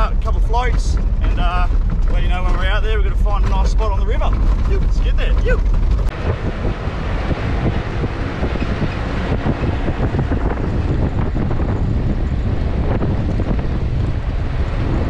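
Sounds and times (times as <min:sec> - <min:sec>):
tyres on gravel: 0:00.0 - 0:06.2
vehicle engine rumble: 0:00.0 - 0:15.0
wind buffeting microphone: 0:00.0 - 0:15.0.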